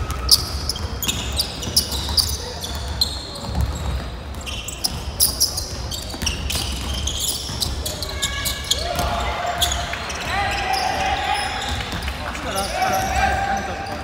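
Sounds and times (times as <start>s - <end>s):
basketball bouncing: 0.0s - 8.0s
sneakers squeaking on gym floor: 0.0s - 14.0s.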